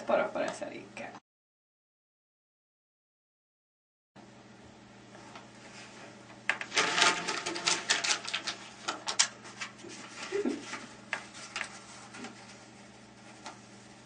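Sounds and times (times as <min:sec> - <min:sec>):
paper rustling: 0:05.7 - 0:14.0.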